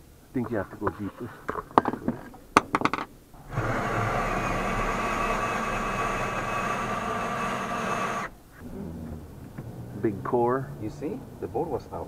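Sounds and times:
cordless drill boring: 3.4 - 8.4.

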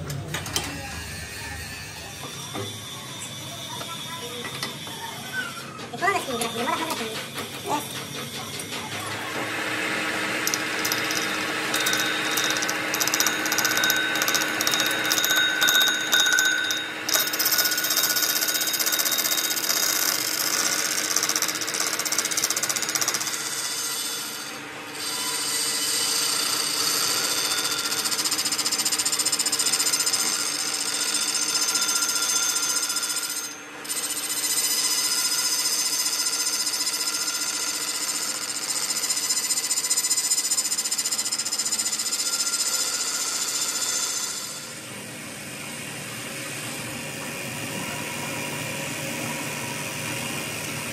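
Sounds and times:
metal lathe cutting steel: 9.0 - 45.0.

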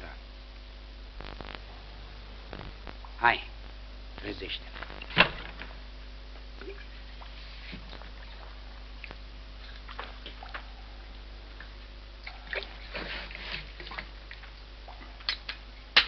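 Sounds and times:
steady low hum: 0.0 - 16.0
water sloshing and splashing: 6.6 - 16.0.

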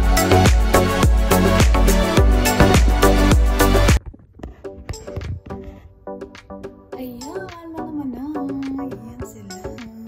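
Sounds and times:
dance music with deep bass: 0.0 - 4.0.

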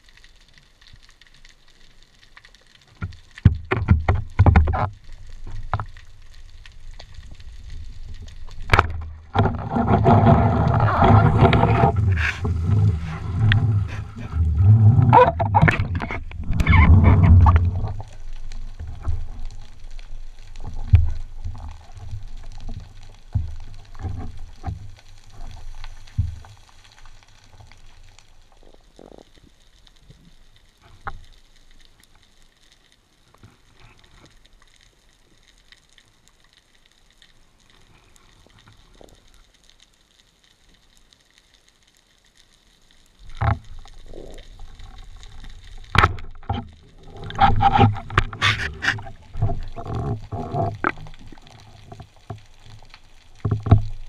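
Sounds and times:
faint clicks: 0.0 - 54.0
underwater knocks and rumbling: 2.4 - 29.7, 43.2 - 54.0.

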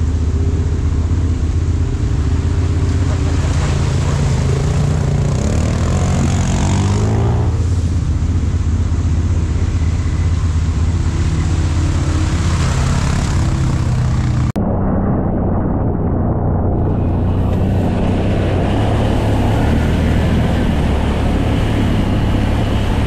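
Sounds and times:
atv engine revving: 0.0 - 14.6, 16.3 - 23.0
water splashing: 0.1 - 14.6.

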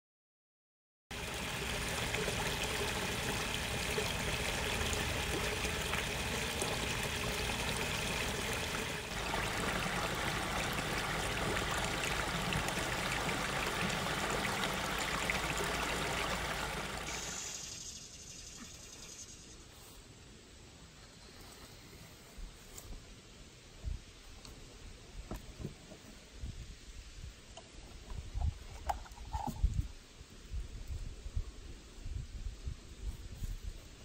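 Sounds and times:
waterfall splashing into pond: 1.1 - 18.9.

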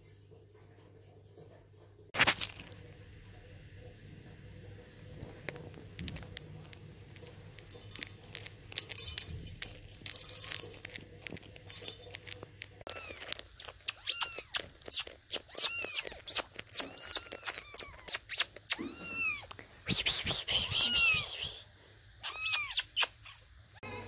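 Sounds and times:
kitten mewing: 12.9 - 19.6, 20.2 - 21.6, 22.2 - 24.0.

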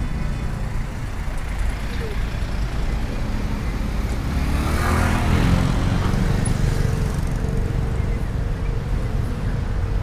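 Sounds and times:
road traffic rumble: 0.0 - 10.0.

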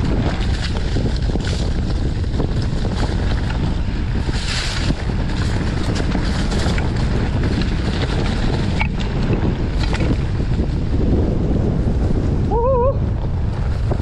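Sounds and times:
bike clicks and knocks: 0.0 - 10.9
low rumble: 0.0 - 14.0
wind rushing over microphone: 0.0 - 14.0.

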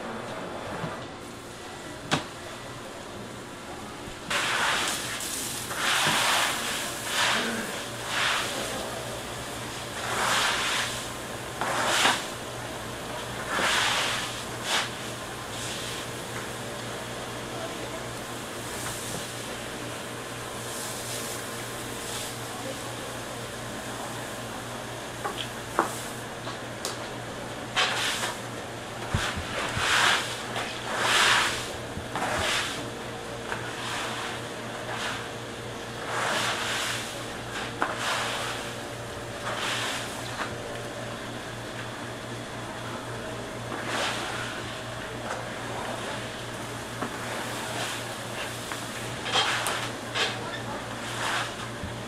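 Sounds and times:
steady low hum: 0.0 - 52.0
ice slush splashing on floor: 4.3 - 9.0, 9.9 - 12.3, 13.4 - 16.0, 29.1 - 32.8, 36.0 - 38.7.

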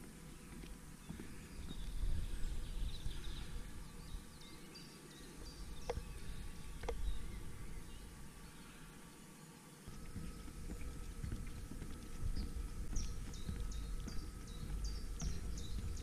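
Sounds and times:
wind rumble on microphone: 1.2 - 4.6, 5.4 - 8.4, 9.9 - 16.0.

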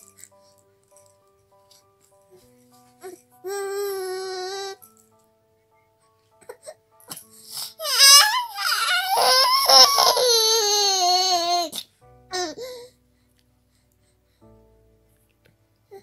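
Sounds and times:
baby crying: 3.0 - 4.8, 7.6 - 12.9.

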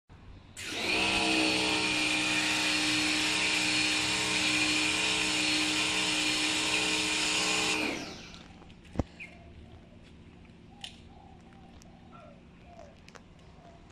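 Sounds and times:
pressure washer spraying water: 0.6 - 8.4
electric pump hum: 0.6 - 9.6.

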